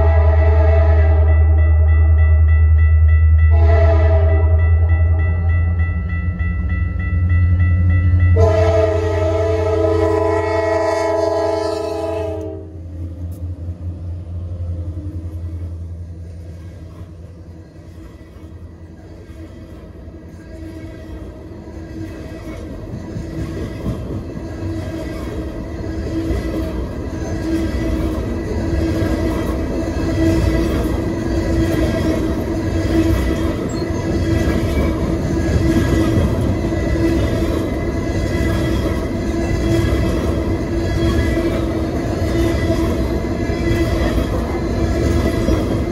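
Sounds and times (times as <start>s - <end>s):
locomotive horn: 0.0s - 1.6s, 3.5s - 5.2s, 8.4s - 12.8s
train rumbling past: 0.0s - 45.9s
faint high wheel squeal: 33.7s - 34.2s.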